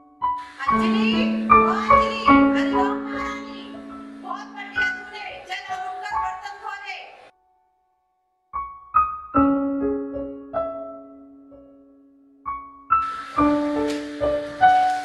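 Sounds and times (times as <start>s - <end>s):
slow piano notes: 0.0s - 15.0s.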